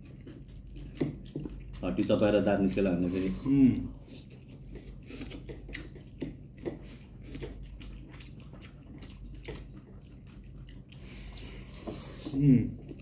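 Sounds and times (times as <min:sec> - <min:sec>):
wet chewing: 0:00.0 - 0:13.0.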